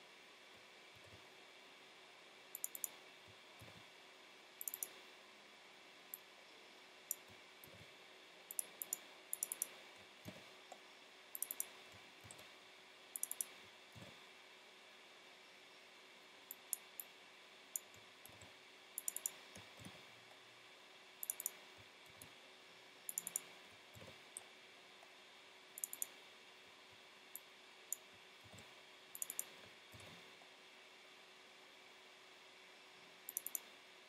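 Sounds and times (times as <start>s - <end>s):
mouse and keyboard clicks: 2.6s - 3.0s, 4.6s - 5.0s, 8.5s - 10.8s, 11.4s - 12.5s, 13.2s - 13.6s, 17.8s - 20.0s, 21.2s - 22.3s, 23.1s - 24.5s, 25.8s - 26.2s, 27.4s - 30.2s, 33.3s - 33.7s.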